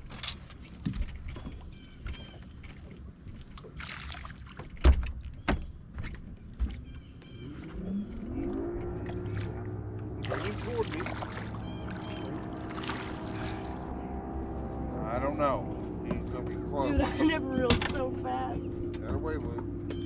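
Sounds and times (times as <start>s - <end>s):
knocks and thumps on boat deck: 4.5s - 7.0s, 16.0s - 18.2s, 18.9s - 20.0s.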